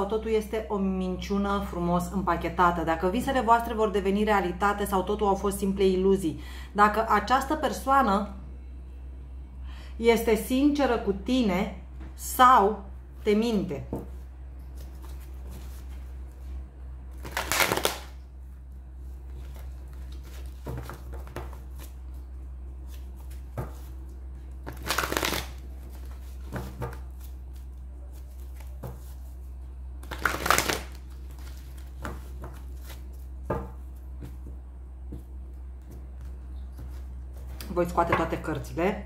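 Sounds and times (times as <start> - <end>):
steady low hum: 0.0 - 39.0
cards shuffling: 14.6 - 16.4, 17.2 - 18.2, 19.3 - 22.2, 22.8 - 29.4, 30.0 - 34.4.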